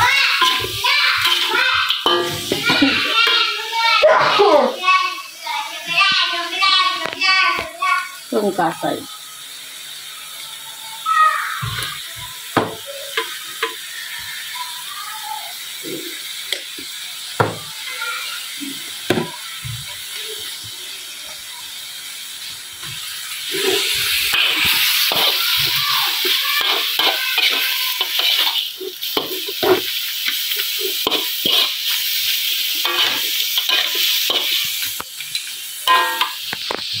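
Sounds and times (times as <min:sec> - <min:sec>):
meat hissing scrape in wok: 0:00.0 - 0:04.6, 0:19.9 - 0:37.0
ladle clinking against wok: 0:01.3 - 0:02.6.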